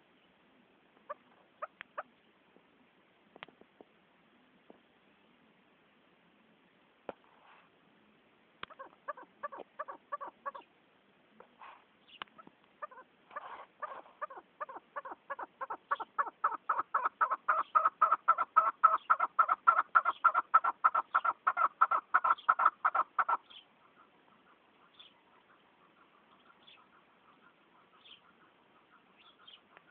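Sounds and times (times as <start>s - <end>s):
partridge calling: 1.0s - 2.2s, 8.6s - 10.7s, 11.4s - 29.9s.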